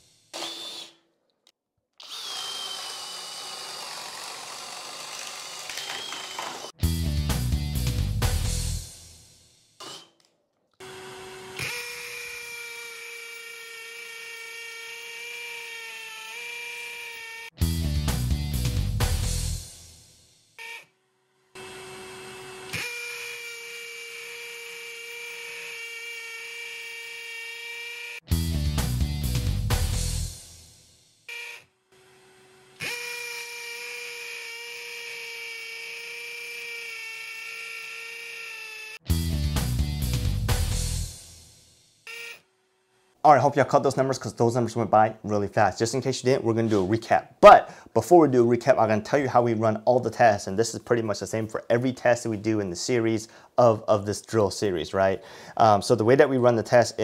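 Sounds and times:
hammer drill boring into concrete: 0.0 - 1.0, 2.0 - 6.8, 9.8 - 17.6, 21.6 - 28.3, 31.3 - 39.0, 42.1 - 42.5.

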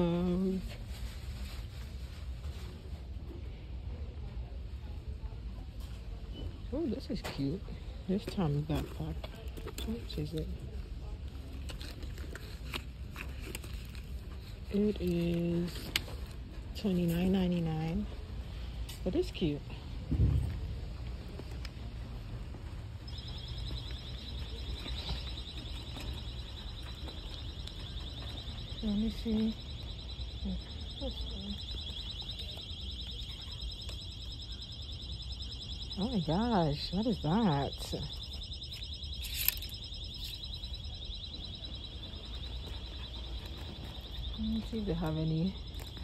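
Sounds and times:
low steady hum: 0.0 - 46.0
electronic alarm pulsing beep: 23.0 - 46.0.

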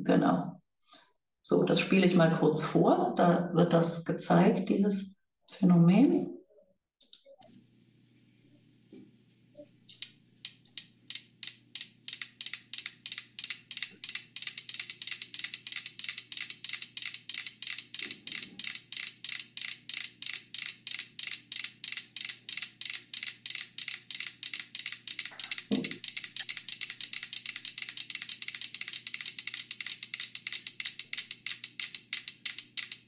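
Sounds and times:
metronomes ticking: 10.0 - 33.0.

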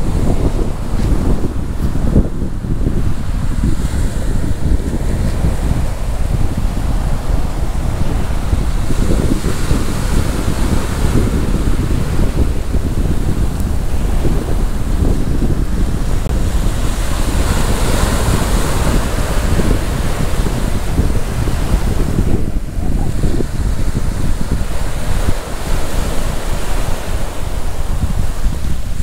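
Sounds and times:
sea waves washing onto beach: 0.0 - 29.0
wind buffeting microphone: 0.0 - 29.0.

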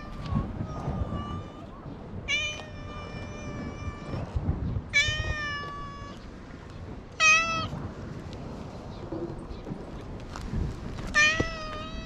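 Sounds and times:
cat meowing: 0.0 - 6.3, 7.2 - 7.7, 11.1 - 12.0.

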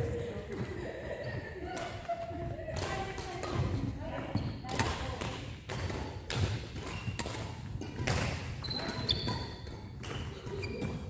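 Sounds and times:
rackets hitting shuttlecock: 2.7 - 11.0
shoe squeaks: 4.2 - 4.7, 8.6 - 11.0.

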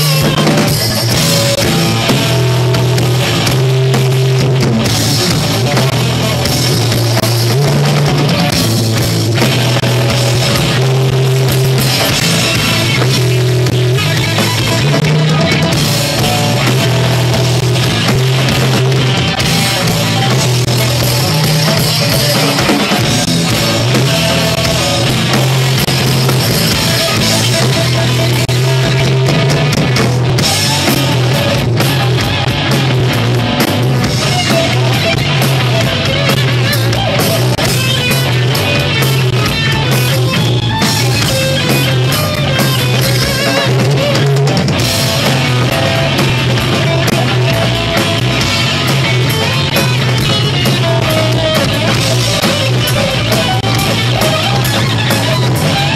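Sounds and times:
bass guitar: 0.0 - 55.9
drum kit with cymbals: 0.0 - 55.9
electric guitar: 0.0 - 55.9.

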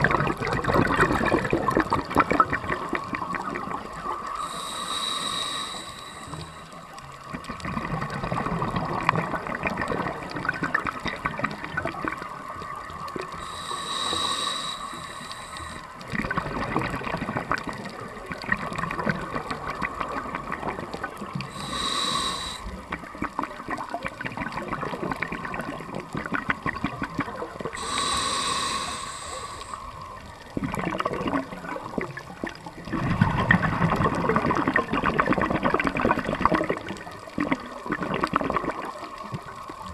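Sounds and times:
underwater bubbling: 0.0 - 39.9
regulator inhalation hisses: 4.2 - 7.0, 13.3 - 16.0, 21.4 - 23.1, 27.7 - 30.2.

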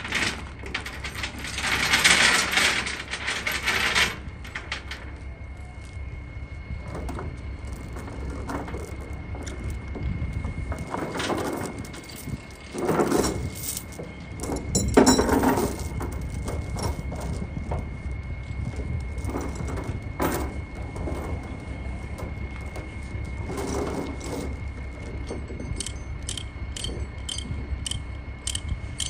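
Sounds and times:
steel chains clanking and rattling: 0.0 - 5.2, 10.7 - 17.9, 18.6 - 29.0
low rumble: 0.0 - 29.0.

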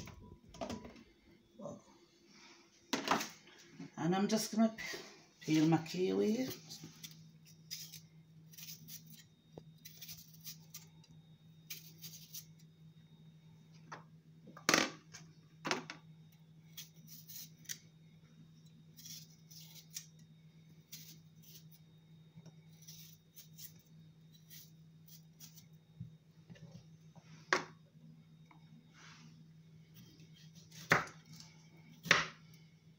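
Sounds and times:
steady low hum: 0.0 - 32.9
knife scraping fruit skin: 6.3 - 11.0, 11.6 - 12.7, 16.7 - 17.9, 18.9 - 20.2, 20.9 - 21.8, 22.7 - 25.8.

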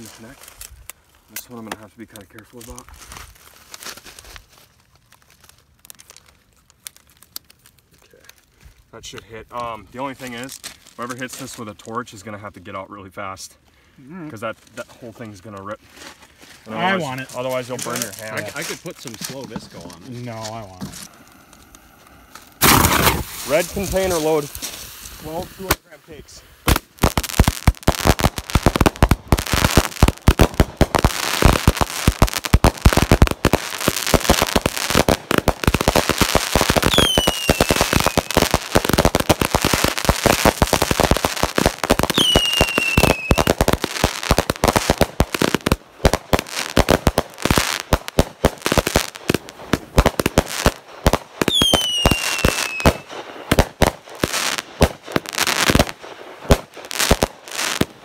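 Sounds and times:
fireworks thumps and crackling: 17.0 - 21.2, 22.3 - 25.9, 26.6 - 58.0
falling firework whistles: 36.8 - 38.4, 42.0 - 43.6, 51.4 - 53.5.

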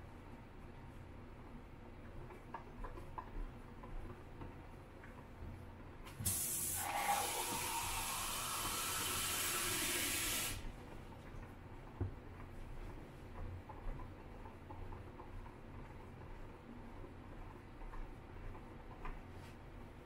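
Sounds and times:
tap water pouring into a tank: 6.2 - 10.7.

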